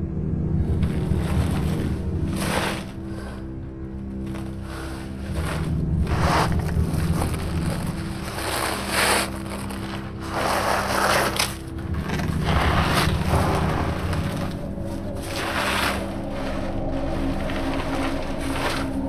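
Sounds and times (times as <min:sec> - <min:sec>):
low steady drone: 0:00.0 - 0:19.0
crawling scraping through debris: 0:00.6 - 0:19.0.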